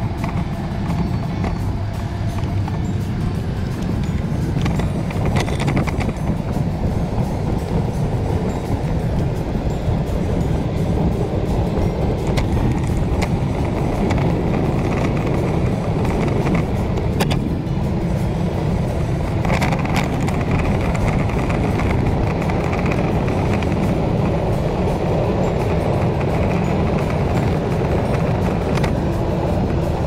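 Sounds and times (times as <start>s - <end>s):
road noise: 0.0s - 30.0s
wind rumble on microphone: 0.0s - 30.0s
sharp clicks or rattles: 3.7s - 6.6s.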